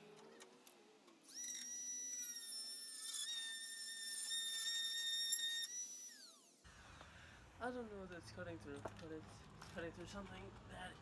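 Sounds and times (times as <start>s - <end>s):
rotary tool cutting metal: 0.0s - 6.6s.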